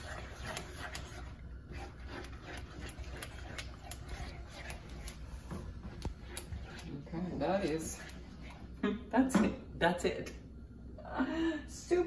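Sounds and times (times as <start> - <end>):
wooden spoon stirring thick sauce: 0.0 - 8.8.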